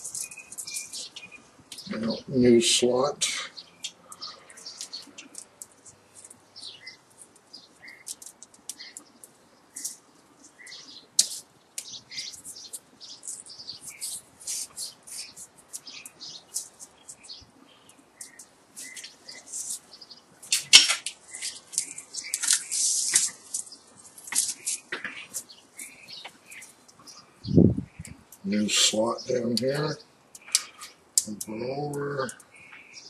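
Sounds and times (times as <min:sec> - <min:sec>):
wire scratching and ticking: 0:00.0 - 0:03.2, 0:03.8 - 0:32.7
sharp snap: 0:11.2 - 0:11.9.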